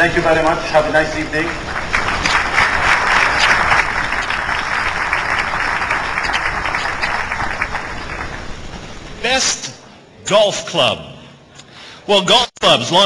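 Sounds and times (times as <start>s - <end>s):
audience applauding: 1.1s - 9.2s.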